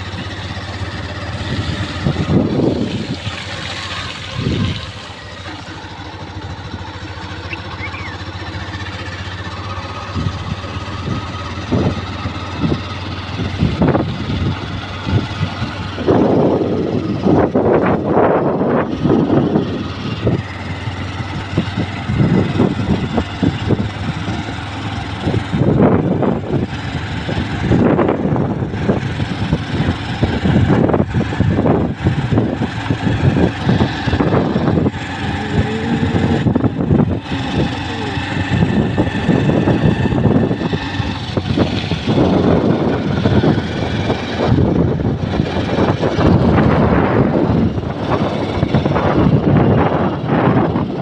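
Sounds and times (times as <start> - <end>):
wind buffeting microphone: 0.0 - 5.1, 10.1 - 51.0
motorcycle engine running: 0.0 - 51.0.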